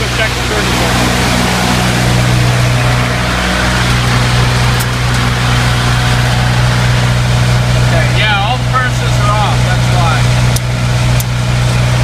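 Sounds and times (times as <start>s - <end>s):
diesel generator running: 0.0s - 12.0s.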